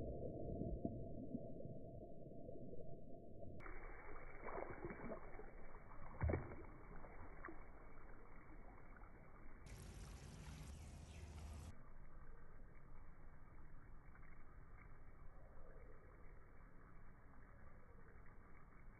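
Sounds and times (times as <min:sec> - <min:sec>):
water splashing on concrete: 0:03.6 - 0:11.7.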